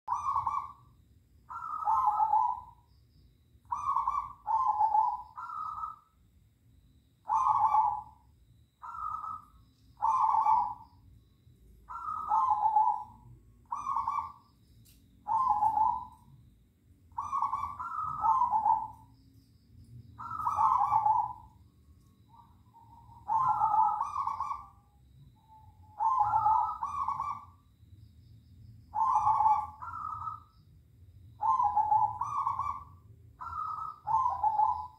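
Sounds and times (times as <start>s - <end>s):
doves cooing: 0.1s - 0.9s, 1.5s - 2.8s, 3.6s - 6.1s, 7.2s - 8.2s, 8.8s - 10.9s, 11.9s - 14.4s, 15.2s - 16.3s, 17.1s - 19.1s, 20.2s - 21.6s, 22.3s - 24.8s, 25.4s - 27.6s, 28.9s - 30.5s, 31.4s - 34.9s.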